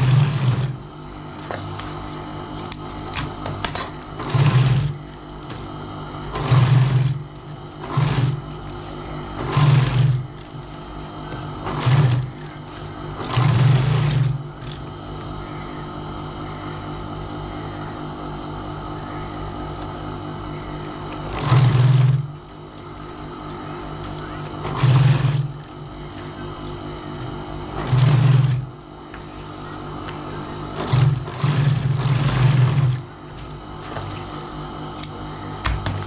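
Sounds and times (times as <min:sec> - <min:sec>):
sewing machine stitching leather: 0:00.0 - 0:00.8, 0:03.8 - 0:10.7, 0:11.3 - 0:14.9, 0:21.1 - 0:22.4, 0:24.4 - 0:26.2, 0:27.1 - 0:28.8, 0:30.6 - 0:33.5
steady machine hum: 0:00.0 - 0:36.0.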